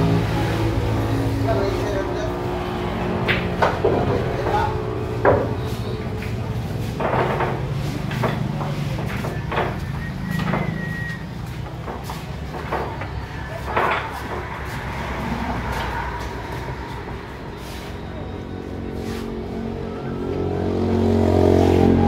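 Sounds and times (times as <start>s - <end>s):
billiard balls clacking: 3.0s - 16.0s.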